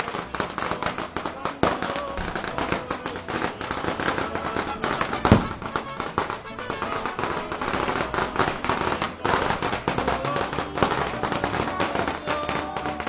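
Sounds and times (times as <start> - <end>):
firecrackers crackling: 0.0 - 13.0
loud firecracker bang: 0.0 - 13.0
mariachi band playing and singing: 0.0 - 13.0.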